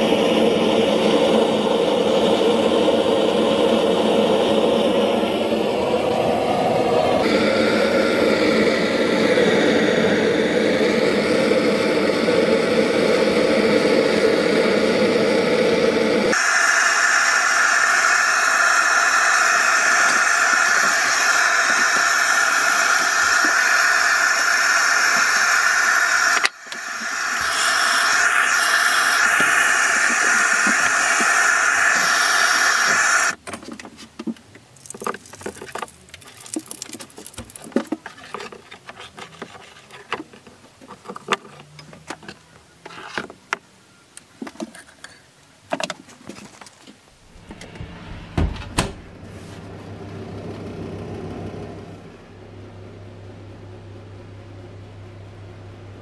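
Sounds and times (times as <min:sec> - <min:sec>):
gas blowtorch hissing: 0:00.0 - 0:33.4.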